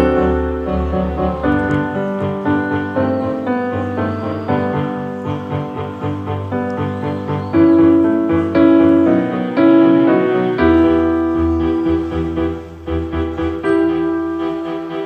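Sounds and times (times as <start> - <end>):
piano notes: 0.0 - 15.0.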